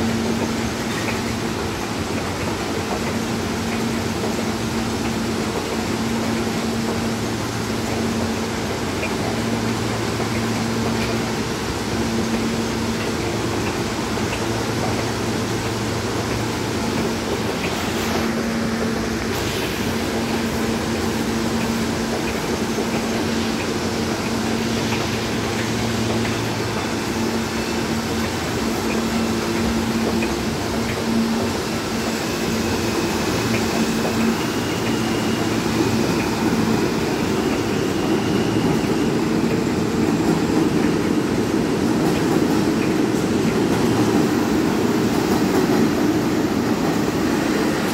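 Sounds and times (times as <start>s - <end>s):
subway train humming: 0.0s - 47.9s
train motor whine rising: 14.8s - 41.5s.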